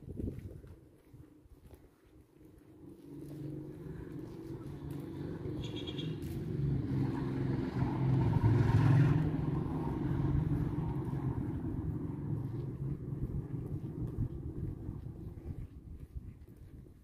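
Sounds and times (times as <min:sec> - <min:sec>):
vehicle engine passing: 0:02.8 - 0:15.6.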